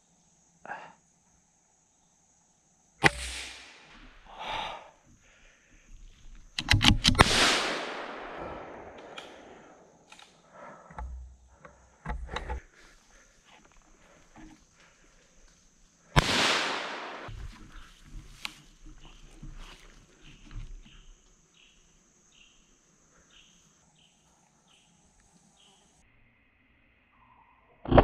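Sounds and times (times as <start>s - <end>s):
faint gunshot cracks: 3.0s - 3.9s, 7.0s - 9.8s, 16.2s - 17.3s
gunshots echoing through trees: 3.0s - 4.4s, 6.6s - 10.2s, 16.1s - 17.5s.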